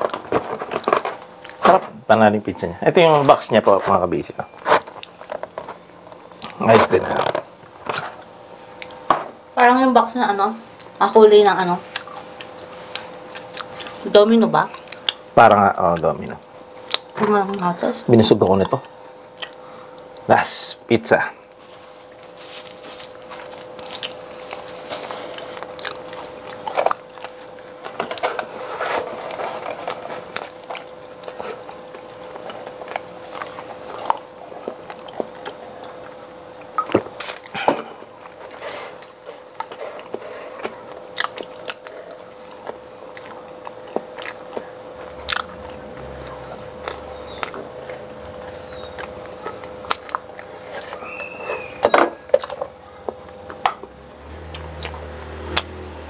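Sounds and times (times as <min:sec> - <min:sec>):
steady hum: 0:00.0 - 0:56.0
person chewing food: 0:08.2 - 0:09.1, 0:11.9 - 0:14.0, 0:14.7 - 0:15.3, 0:18.6 - 0:20.3, 0:21.6 - 0:55.8.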